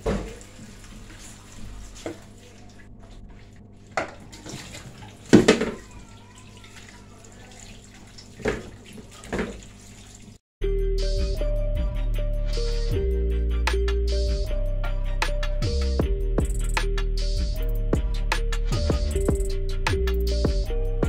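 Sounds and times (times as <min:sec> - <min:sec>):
tap running into sink: 0:00.0 - 0:01.0, 0:08.4 - 0:09.7.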